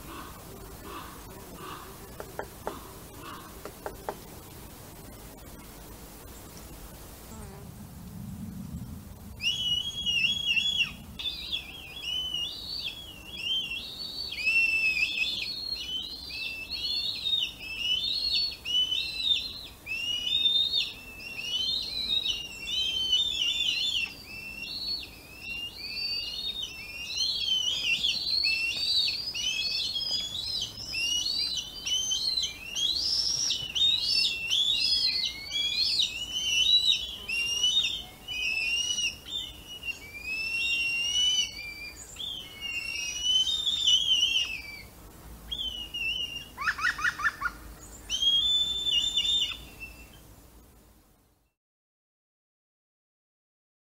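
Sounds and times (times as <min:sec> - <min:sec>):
bird chicks whistled calls: 0:09.4 - 0:44.9, 0:45.5 - 0:50.2.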